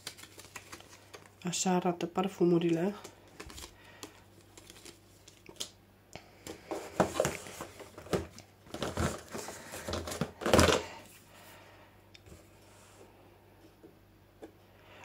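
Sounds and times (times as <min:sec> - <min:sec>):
packaging crinkling and rustling: 0:00.0 - 0:01.4, 0:02.7 - 0:05.8, 0:06.5 - 0:11.0.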